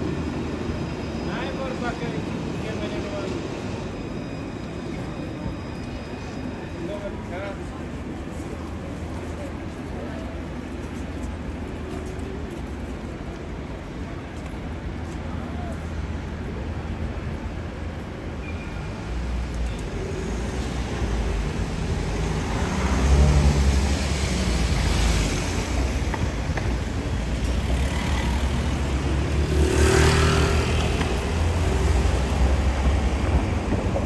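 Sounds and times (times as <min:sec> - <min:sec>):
low traffic rumble: 0:00.0 - 0:34.0
cars driving past: 0:20.1 - 0:34.0.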